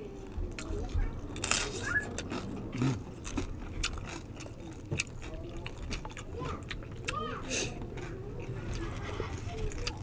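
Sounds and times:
crunching crispy pork skin: 1.4 - 6.3.

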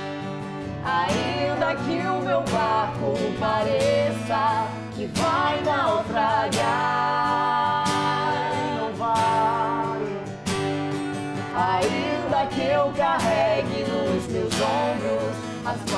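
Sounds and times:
acoustic guitar strumming: 0.0 - 15.9
man singing gospel song: 11.6 - 15.9.

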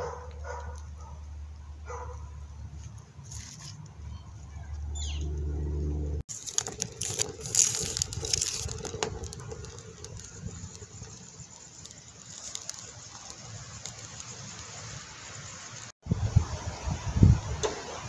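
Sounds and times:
wood fire crackling and popping: 6.3 - 15.0
wind gusts on microphone: 16.0 - 18.0.

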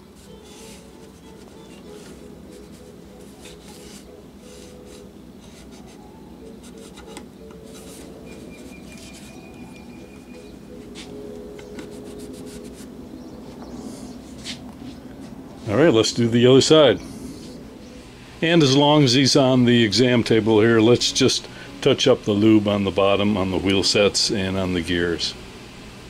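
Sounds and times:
cloth wiping painted metal: 0.0 - 6.0, 7.7 - 9.6.

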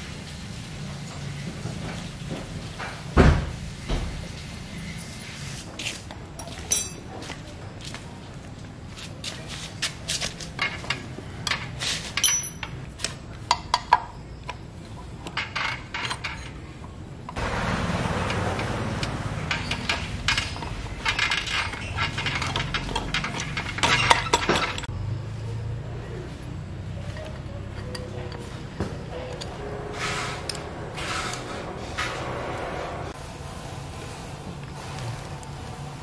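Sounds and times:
metal parts clinking: 6.4 - 7.1, 10.6 - 12.9, 15.2 - 16.7, 19.5 - 24.9.

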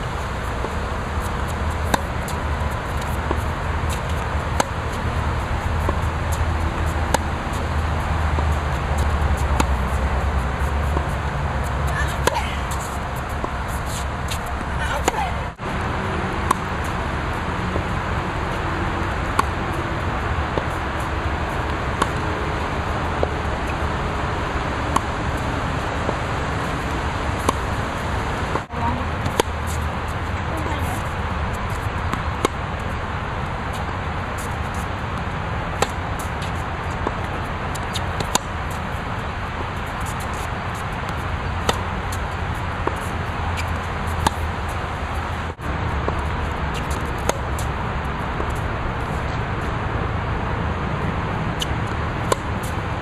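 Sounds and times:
tennis racket hitting ball: 0.4 - 15.6, 16.4 - 19.8, 29.2 - 29.8, 33.7 - 39.0, 39.8 - 49.4, 51.5 - 52.8.

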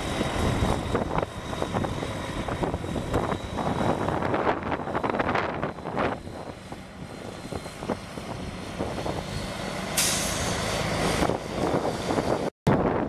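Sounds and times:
air brake hiss: 10.0 - 10.6.

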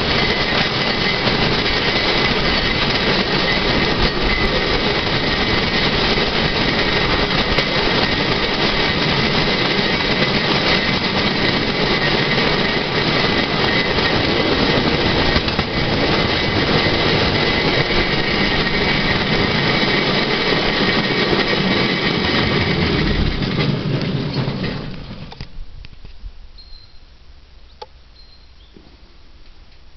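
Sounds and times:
steel wheels rattling on rails: 0.0 - 25.6.

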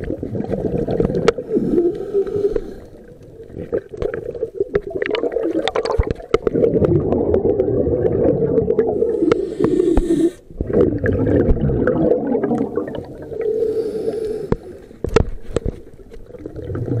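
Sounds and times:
bubbles gurgling underwater: 0.0 - 13.7, 16.2 - 17.0
regulator hiss: 9.2 - 10.4.

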